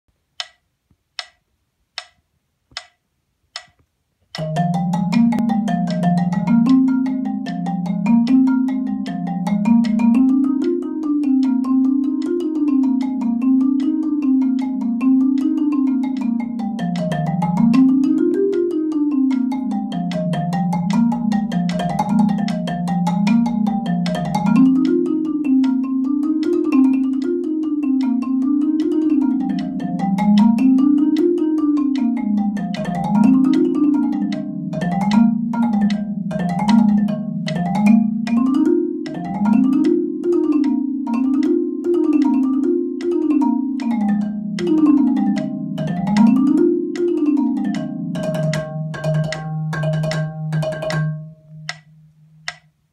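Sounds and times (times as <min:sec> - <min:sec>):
sharp clicks: 0:00.4 - 0:00.6, 0:01.2 - 0:01.4, 0:03.6 - 0:04.4
marimba scales: 0:04.4 - 0:52.6.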